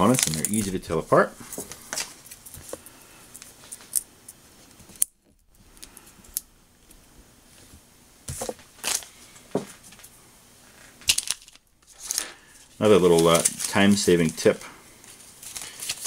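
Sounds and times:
plastic tape clicks and crinkles: 0.0 - 0.8, 11.0 - 14.6, 15.4 - 16.0.

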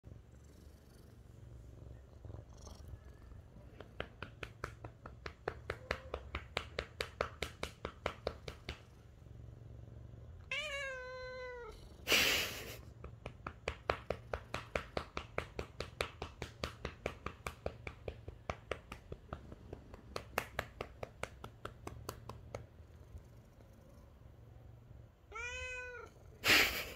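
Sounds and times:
cat purring: 0.1 - 10.5, 11.6 - 25.1
hand patting cat: 3.6 - 8.9, 12.2 - 22.7
cat meowing: 10.5 - 11.8, 25.3 - 26.1.

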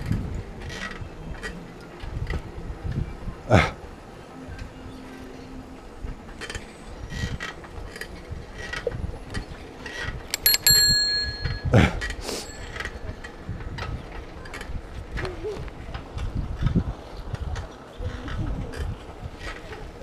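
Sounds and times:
bicycle ride rattle and rumble: 0.0 - 11.6, 12.4 - 20.0
bicycle bell ringing: 10.3 - 13.2.

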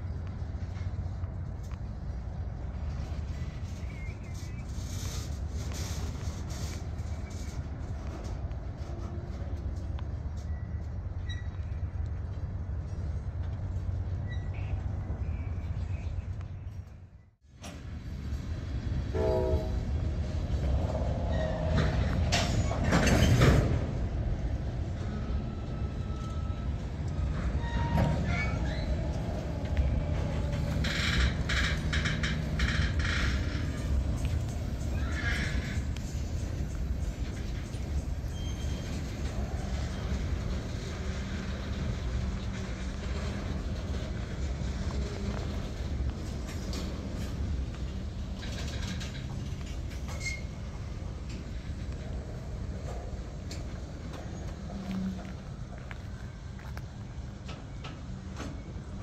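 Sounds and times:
freight train wheels rumbling: 0.0 - 59.0
rail cars rattling: 0.0 - 59.0
train horn: 19.1 - 19.9.

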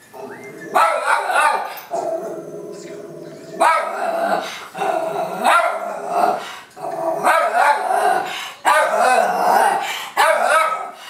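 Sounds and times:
dog barking: 0.7 - 1.8, 3.6 - 6.4, 7.2 - 11.0.

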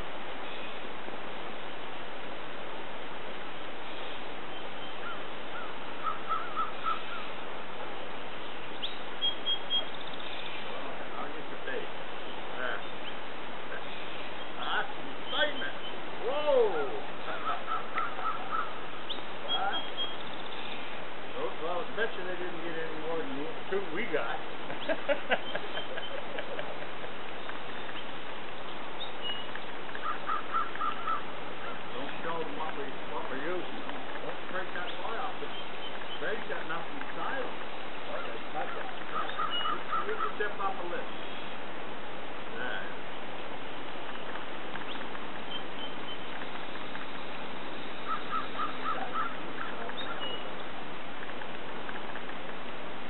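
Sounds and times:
birds calling: 0.0 - 1.9, 3.6 - 53.0
steady background hiss: 0.0 - 53.0.

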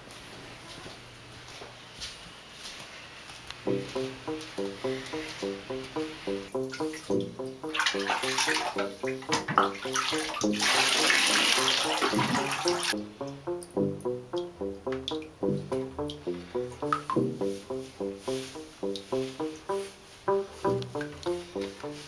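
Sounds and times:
background music with quick notes: 3.6 - 22.0
water rushing into bathtub: 7.7 - 13.0.

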